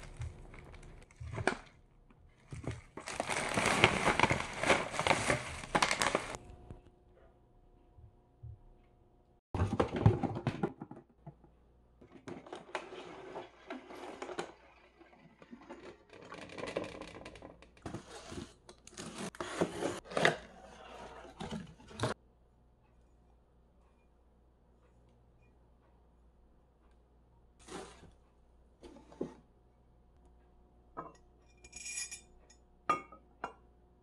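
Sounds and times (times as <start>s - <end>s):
plastic wrapping crinkling: 0.0s - 1.6s, 2.5s - 6.6s.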